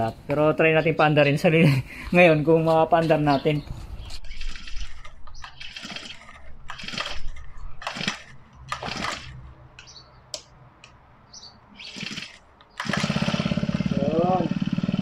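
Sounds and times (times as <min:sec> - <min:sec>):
pull starter rasping: 0:04.3 - 0:09.4, 0:11.8 - 0:15.0
small engine firing: 0:04.3 - 0:09.4, 0:11.8 - 0:15.0.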